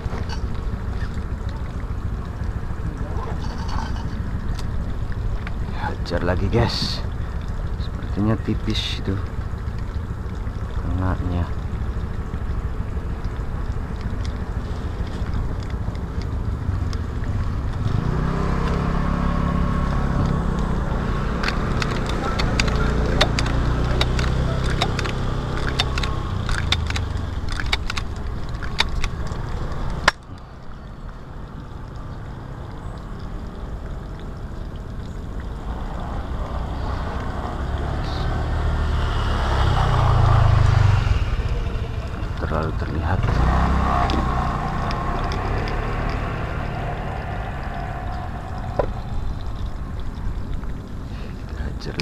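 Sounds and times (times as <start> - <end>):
vehicle engine running: 0.0 - 52.0
sharp clicks: 21.4 - 30.4.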